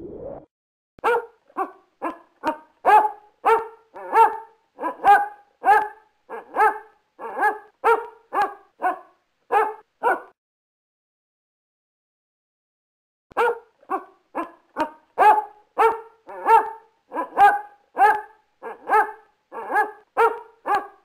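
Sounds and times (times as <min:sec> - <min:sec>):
dog barking: 0:01.0 - 0:10.4, 0:13.3 - 0:21.0.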